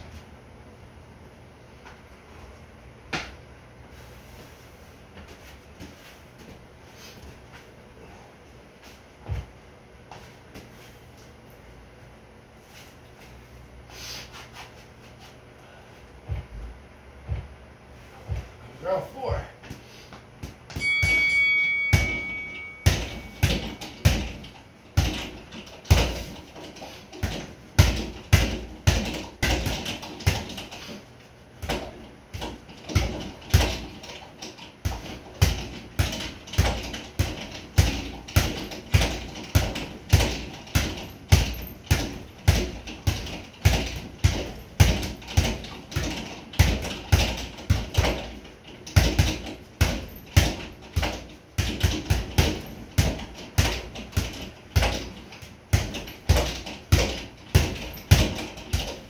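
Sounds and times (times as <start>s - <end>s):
boxing gloves punching a bag: 20.4s - 31.0s, 31.6s - 59.0s.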